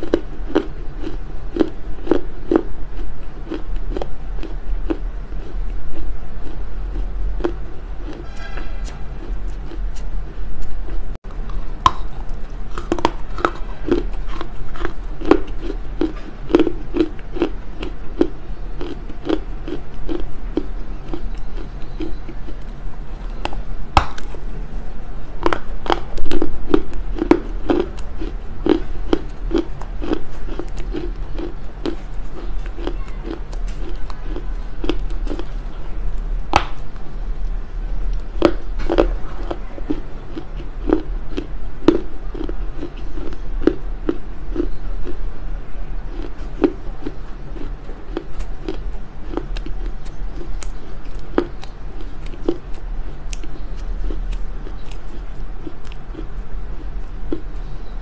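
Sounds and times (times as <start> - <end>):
chewing crunchy clay: 0.0 - 58.0
sharp bite crunch: 23.4 - 24.5, 36.5 - 37.0.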